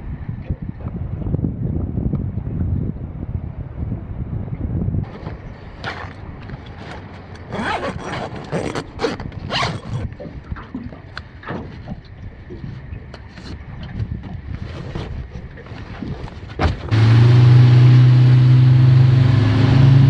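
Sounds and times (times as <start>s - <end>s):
wind rumbling on microphone: 0.0s - 20.0s
heavy canvas rustling: 5.1s - 10.1s
zipper rasping: 5.1s - 10.1s.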